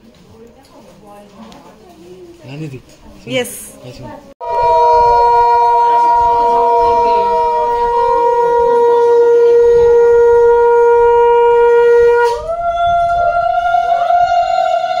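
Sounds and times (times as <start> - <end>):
conch shell blasts: 4.4 - 13.7.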